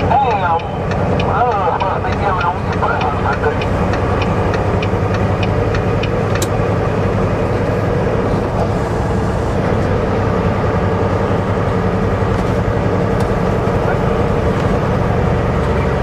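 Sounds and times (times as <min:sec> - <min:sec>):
road noise: 0:00.0 - 0:16.0
truck engine drone: 0:00.0 - 0:16.0
light ticking: 0:00.5 - 0:06.5.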